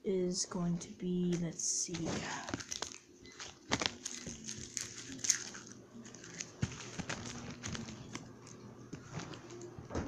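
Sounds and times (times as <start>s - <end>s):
plastic wrappers crinkling: 1.2s - 10.0s
small clicks and crackles: 1.3s - 9.8s.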